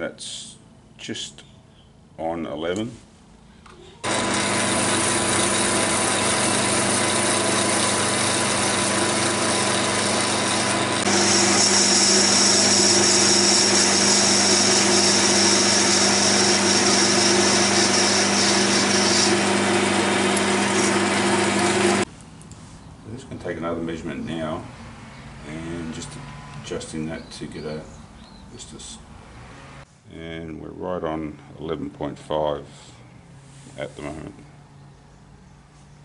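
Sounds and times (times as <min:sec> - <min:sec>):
lathe machine hum: 0:04.0 - 0:22.1.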